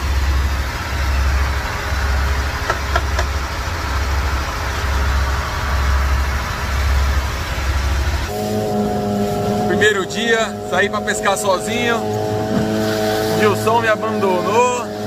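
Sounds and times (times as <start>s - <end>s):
boat engine rumbling: 0.0s - 15.0s
wind and water hissing: 12.2s - 13.8s.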